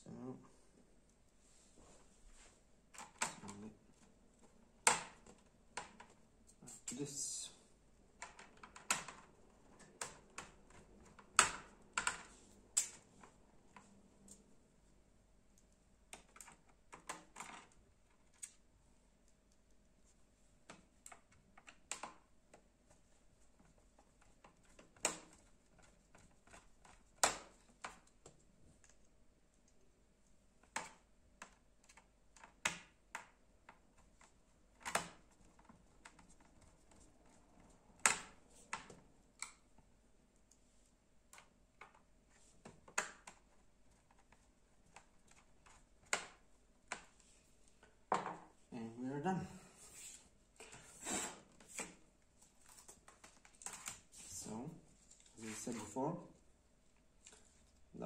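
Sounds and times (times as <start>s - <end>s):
plastic laptop parts clicking: 8.2s - 14.4s, 15.6s - 18.6s, 23.6s - 29.8s, 30.6s - 39.8s, 41.3s - 47.2s.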